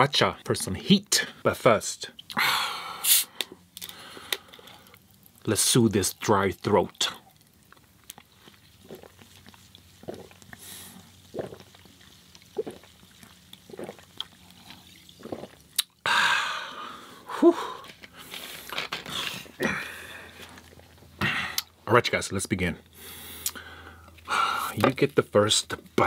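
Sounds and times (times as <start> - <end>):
loud breathy exhale: 2.4 - 4.4
person gulping a drink: 6.9 - 21.7.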